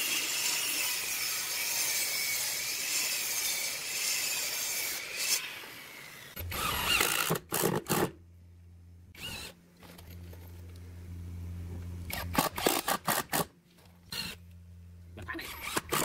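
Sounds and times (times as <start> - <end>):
low steady hum: 6.4 - 16.0.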